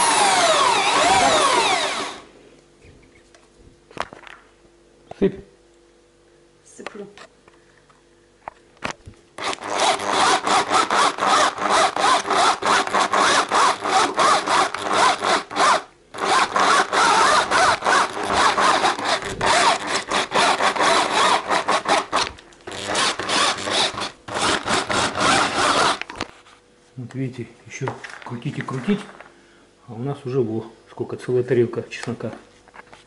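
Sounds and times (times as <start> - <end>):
meat grinder grinding: 0.0 - 2.3, 9.4 - 26.2.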